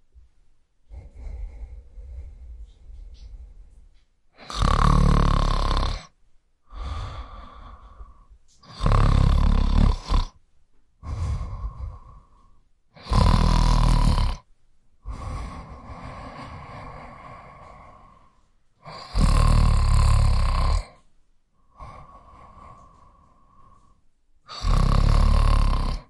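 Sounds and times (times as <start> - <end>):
quiet breath: 0.0 - 10.4, 11.0 - 26.0
man snoring: 4.4 - 6.1, 6.7 - 10.4, 11.0 - 21.0, 21.6 - 23.9, 24.5 - 26.0.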